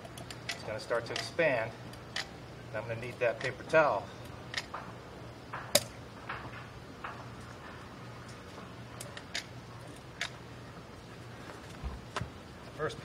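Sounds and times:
sharp clicks and knocks: 0:00.0 - 0:02.4, 0:04.5 - 0:10.4
low steady hum: 0:00.0 - 0:13.0.

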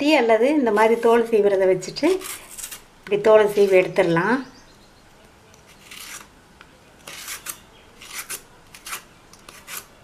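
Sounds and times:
peeler scraping plantain skin: 0:02.0 - 0:04.0, 0:05.6 - 0:06.3, 0:07.0 - 0:10.0.

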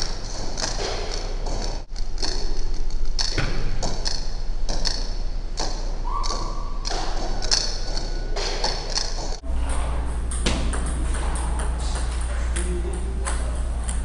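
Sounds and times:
table tennis ball clicks: 0:03.2 - 0:09.4.

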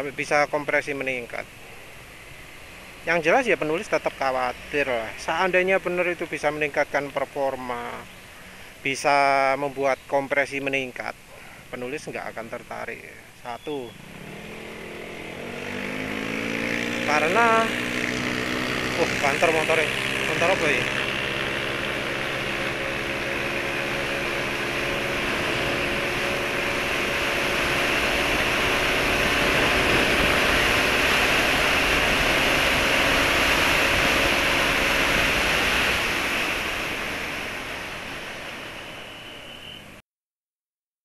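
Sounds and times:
scooter engine drone: 0:13.7 - 0:40.0
wind rushing over microphone: 0:24.4 - 0:38.5.

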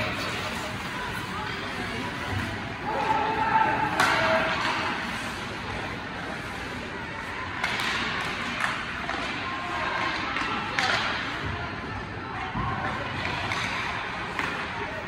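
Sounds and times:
skates scraping on ice: 0:00.0 - 0:11.0
hockey sticks and puck clacking: 0:00.0 - 0:11.5, 0:12.6 - 0:15.0
voices of players and spectators: 0:00.0 - 0:15.0.

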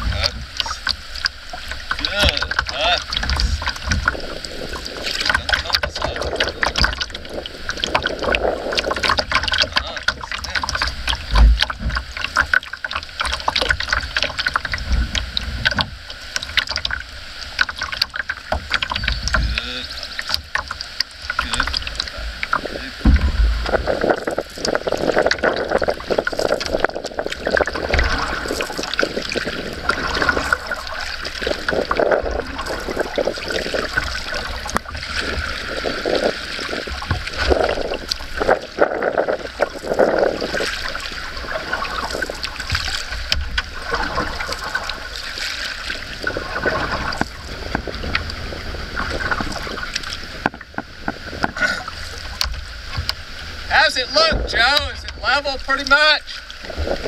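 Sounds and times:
paddle pulling through water: 0:00.0 - 0:57.0
water lapping on hull: 0:00.0 - 0:57.0
low bumps: 0:21.4 - 0:45.3, 0:46.0 - 0:57.0.

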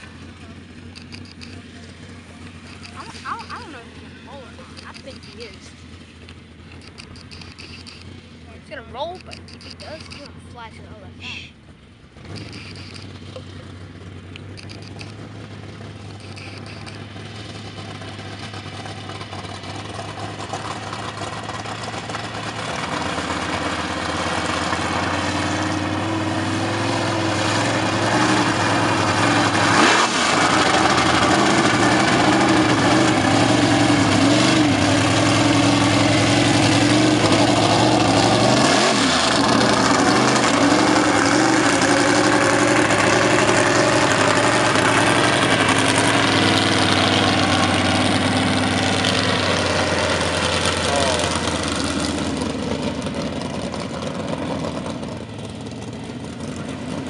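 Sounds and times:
truck engine revving hard: 0:12.1 - 0:57.0.

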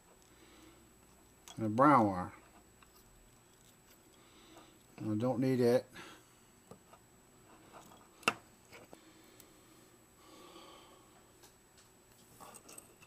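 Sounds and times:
wires clicking and rustling: 0:01.0 - 0:05.2, 0:06.7 - 0:09.5, 0:11.4 - 0:13.0.

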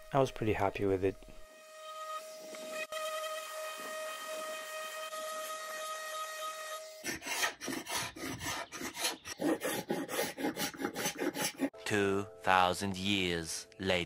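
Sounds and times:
paint scraper rasping on wood: 0:07.0 - 0:11.7
deep narrator's voice: 0:11.8 - 0:14.0.

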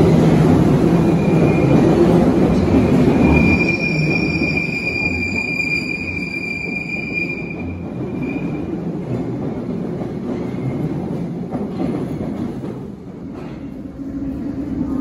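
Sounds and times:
train wheels rumbling on rail: 0:00.0 - 0:15.0
high wheel squeal: 0:03.1 - 0:08.6.

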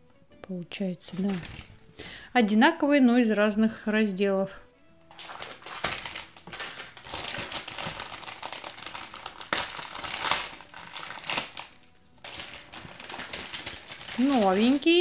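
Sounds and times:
foil packet crinkling and tearing: 0:01.1 - 0:01.8, 0:05.1 - 0:15.0.

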